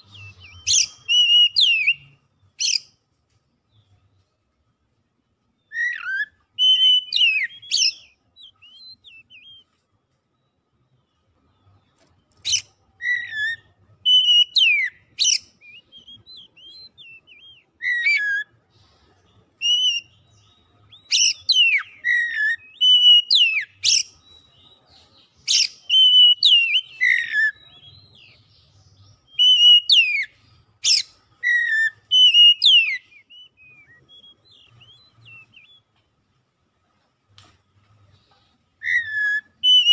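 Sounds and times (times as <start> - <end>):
bird singing whistled phrases: 0.0 - 2.8, 5.6 - 9.7, 12.4 - 18.6, 19.6 - 24.7, 25.4 - 35.9, 38.8 - 39.9.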